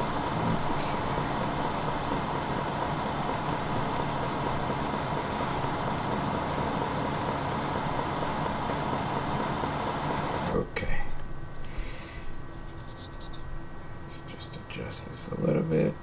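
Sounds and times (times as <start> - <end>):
laser printer humming and whirring: 0.0 - 10.6.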